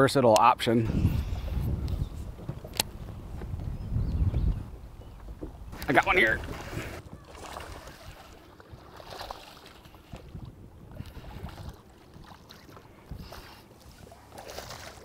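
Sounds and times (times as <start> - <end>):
boat noise: 0.0 - 15.0
wind rumble: 0.8 - 9.0, 9.8 - 13.6
fish splashing in water: 6.4 - 10.2, 11.0 - 15.0.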